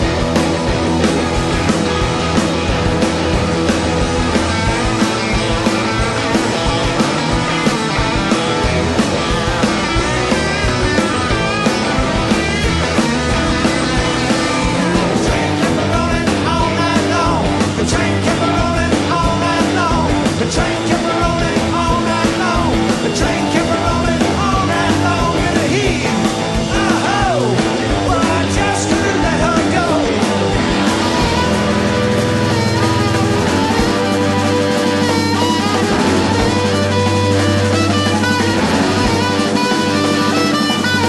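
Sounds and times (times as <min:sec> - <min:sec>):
live rock band playing: 0:00.0 - 0:41.0
pitch-bending lead guitar lines: 0:00.0 - 0:41.0.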